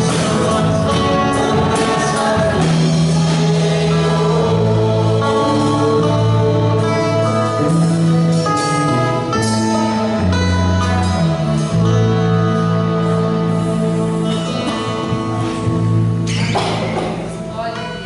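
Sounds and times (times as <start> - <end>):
drums: 0.0 - 17.5
bass line: 0.0 - 17.7
acoustic guitar: 0.0 - 18.0
keyboard: 0.0 - 18.0
singers: 0.0 - 18.0.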